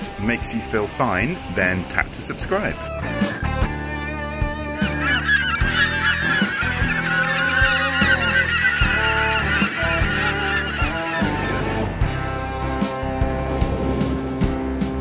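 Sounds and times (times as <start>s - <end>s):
geese honking: 2.5s - 12.7s
background music with steady beat: 2.8s - 15.0s.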